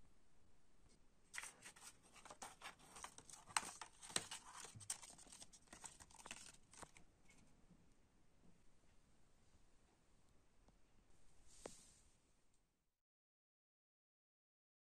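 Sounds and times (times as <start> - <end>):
paper card crinkling: 1.3 - 7.4.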